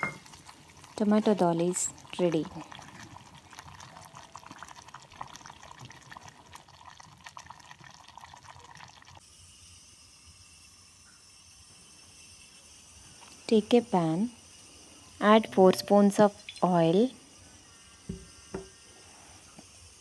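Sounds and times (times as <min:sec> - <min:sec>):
pot crackling and bubbling: 0:00.0 - 0:20.0
faint steady hiss: 0:09.1 - 0:20.0.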